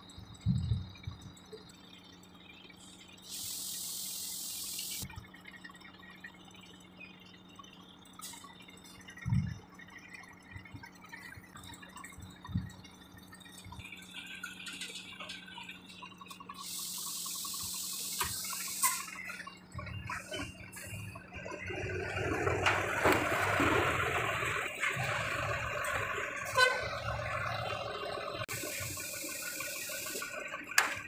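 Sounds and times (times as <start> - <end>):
compressed air hissing: 3.3 - 5.0, 16.6 - 19.2, 28.5 - 30.4
low engine hum: 19.7 - 30.7.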